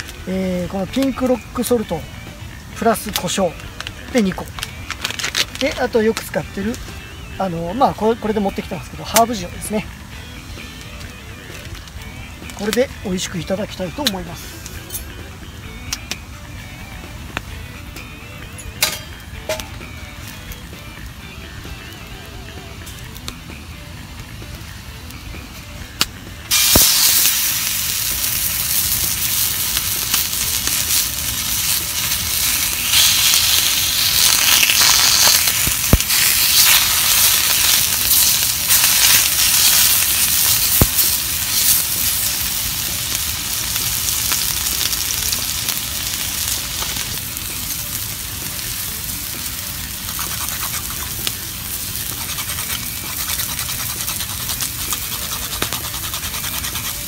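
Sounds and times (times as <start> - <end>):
steaks sizzling in a frying pan: 26.5 - 57.0.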